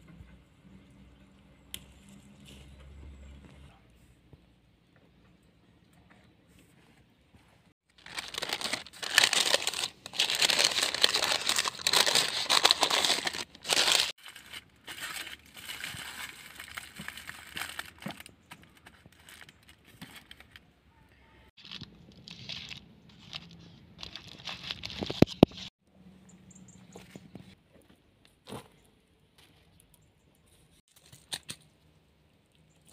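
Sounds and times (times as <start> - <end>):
handling rustles: 7.4 - 20.6
aluminium foil crinkling: 7.9 - 20.7, 21.6 - 25.7.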